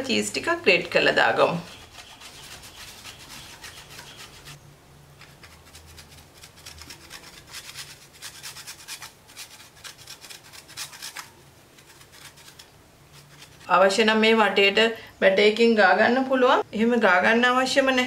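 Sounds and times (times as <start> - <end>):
cheese grating rasping scrapes: 1.2 - 4.6, 5.2 - 13.7.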